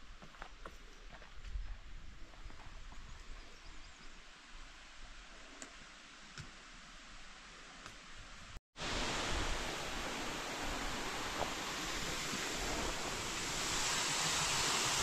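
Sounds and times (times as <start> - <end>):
waterfall rushing: 8.8 - 15.0.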